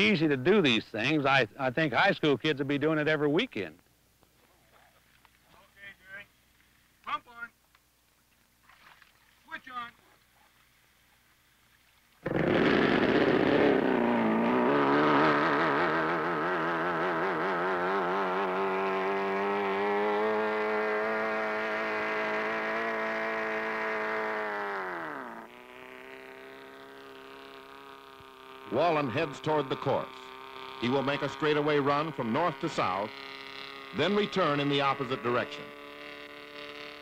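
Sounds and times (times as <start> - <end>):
outboard motor running: 12.2 - 37.0.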